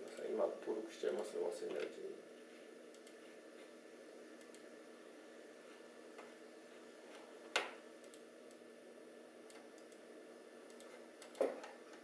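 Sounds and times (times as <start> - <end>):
faint steady hum: 0.0 - 12.0
computer clicks: 2.9 - 3.2, 8.0 - 8.6, 9.5 - 10.0, 10.7 - 11.5.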